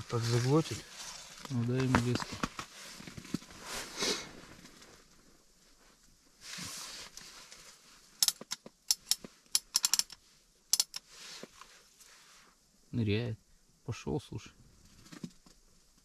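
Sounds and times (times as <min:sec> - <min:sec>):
short rustle: 0:00.0 - 0:08.1
fishing rod clicks and taps: 0:08.2 - 0:11.0.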